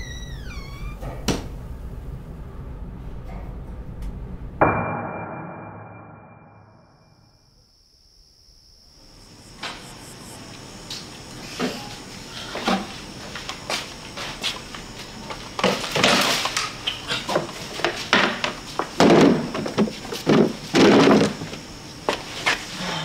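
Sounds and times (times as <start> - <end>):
crickets chirping: 6.6 - 23.0.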